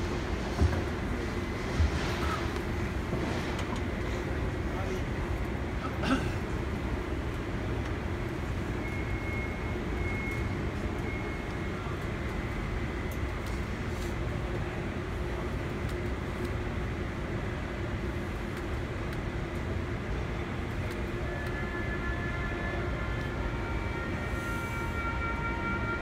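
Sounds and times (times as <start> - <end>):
low rumble of large hall: 0.0 - 26.0.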